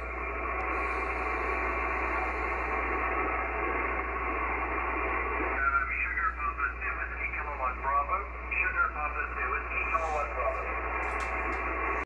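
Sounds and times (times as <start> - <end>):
radio static: 0.0 - 12.0
voice over radio: 5.4 - 11.0.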